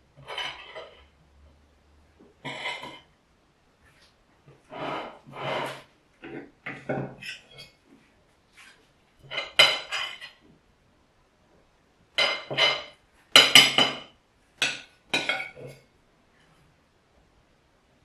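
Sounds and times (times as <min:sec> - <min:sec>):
metal utensil scraping ceramic plate: 0:00.2 - 0:01.1, 0:02.4 - 0:03.1, 0:04.6 - 0:07.8, 0:09.2 - 0:10.4, 0:12.2 - 0:14.0, 0:14.6 - 0:15.8.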